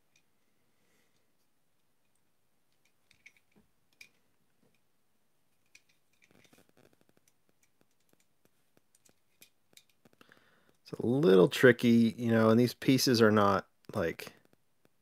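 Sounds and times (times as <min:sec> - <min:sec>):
clicking of model car parts: 0:01.8 - 0:04.8, 0:05.5 - 0:10.8.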